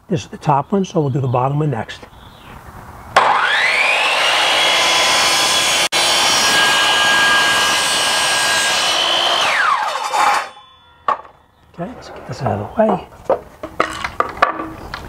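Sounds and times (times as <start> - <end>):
miter saw motor whining: 3.2 - 10.7.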